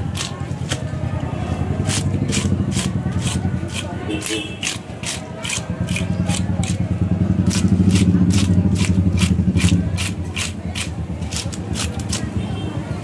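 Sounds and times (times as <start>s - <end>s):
scaler scraping fish scales: 1.8s - 6.8s, 7.5s - 12.4s.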